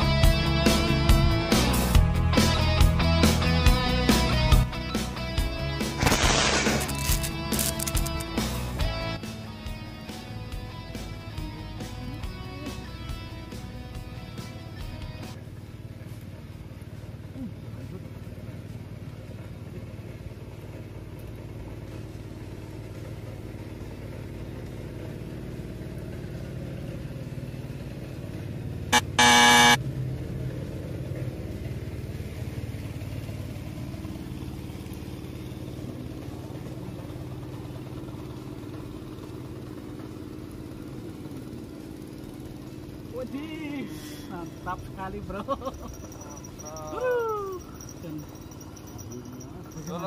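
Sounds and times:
vehicle engine running: 0.0s - 50.0s
car horn honking: 29.0s - 29.8s.

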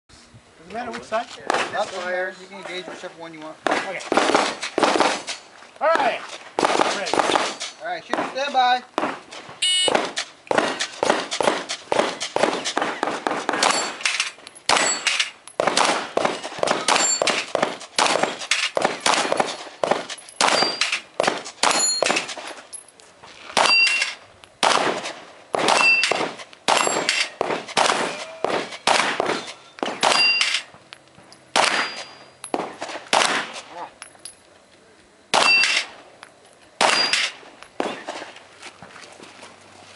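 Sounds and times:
handgun shots: 9.8s - 22.3s, 23.6s - 30.7s, 31.6s - 33.6s, 35.3s - 35.9s, 36.8s - 38.0s
steel plate ding: 20.2s - 20.9s, 30.1s - 30.6s, 31.6s - 32.6s.

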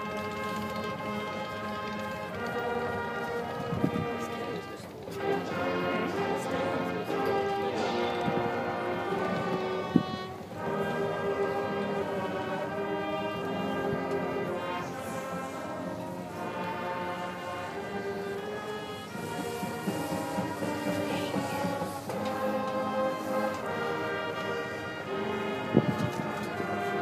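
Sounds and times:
marching band playing: 0.0s - 27.0s.

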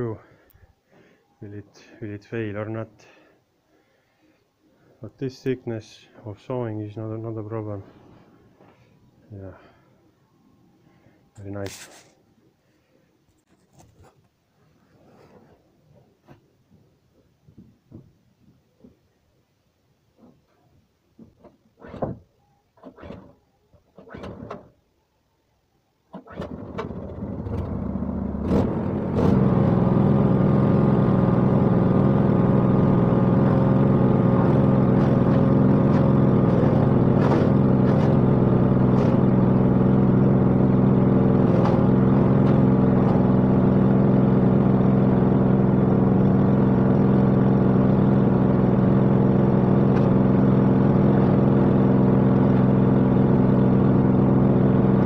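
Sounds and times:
gas engine starting and running: 22.8s - 24.8s, 26.1s - 55.0s.

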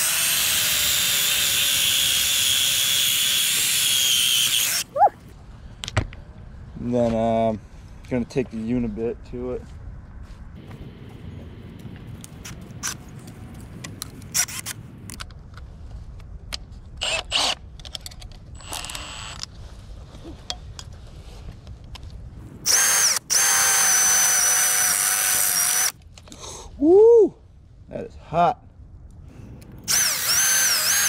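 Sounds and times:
power drill whining: 0.0s - 4.9s, 18.6s - 19.4s, 22.6s - 25.9s, 29.8s - 31.0s.

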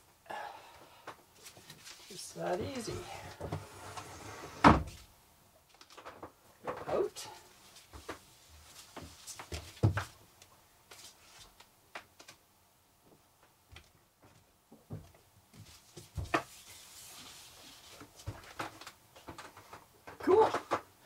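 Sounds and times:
mesh curtain rustling: 1.4s - 3.2s, 15.6s - 18.6s.

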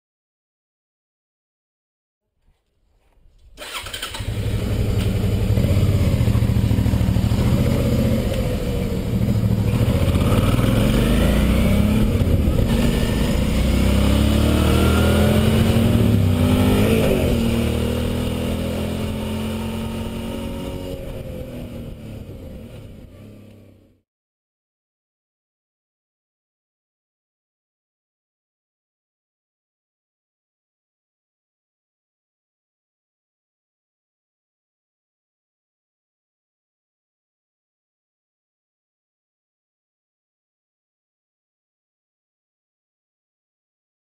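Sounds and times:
motorcycle engine revving: 3.6s - 24.0s.

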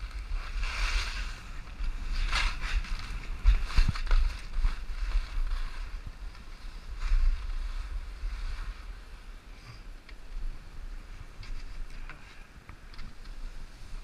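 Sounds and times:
skis scraping over snow: 0.0s - 9.3s
wind buffeting microphone: 0.0s - 9.5s.

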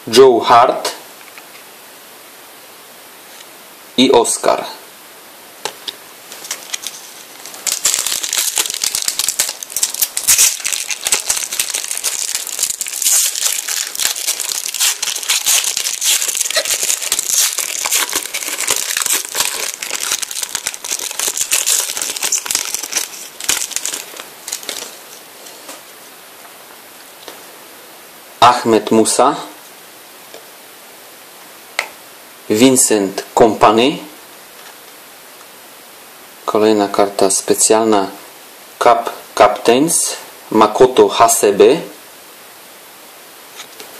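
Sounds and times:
foil wrapper crinkling: 6.3s - 25.7s.

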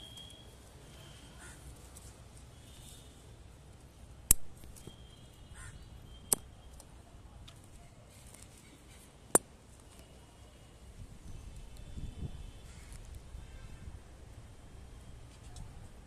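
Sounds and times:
sharp clicks: 4.3s - 5.0s.

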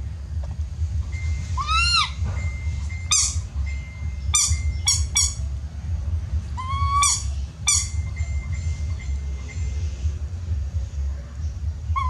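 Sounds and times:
steady low hum: 0.0s - 12.0s
baby monkey calling: 1.4s - 5.6s, 6.5s - 9.0s.

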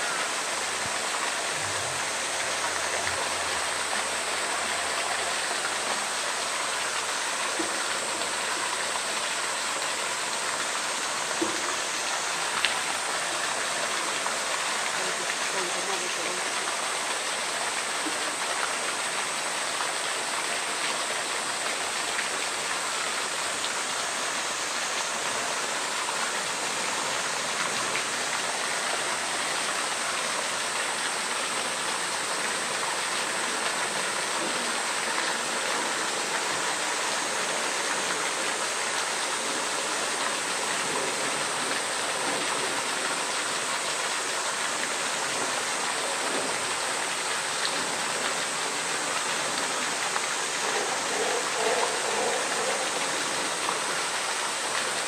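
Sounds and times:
running water rushing: 0.0s - 55.0s.

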